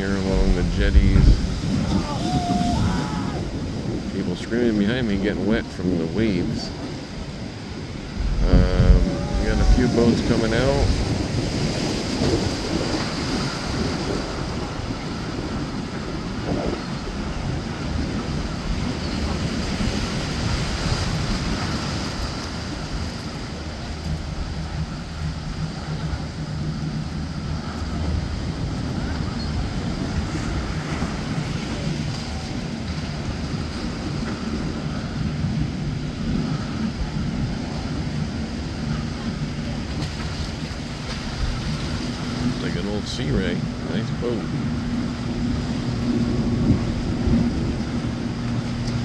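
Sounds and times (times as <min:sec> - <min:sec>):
motorboat engines droning: 0:00.0 - 0:49.0
surf: 0:00.0 - 0:49.0
wind buffeting microphone: 0:00.0 - 0:49.0.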